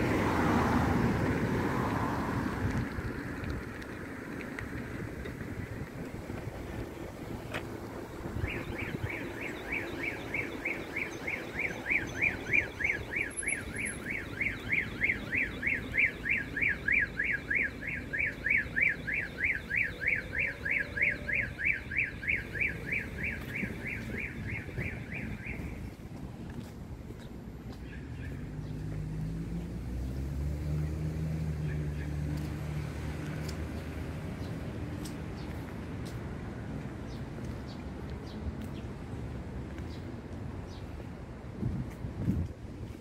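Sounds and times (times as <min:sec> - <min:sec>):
car alarm siren sweeping: 0:08.0 - 0:25.9.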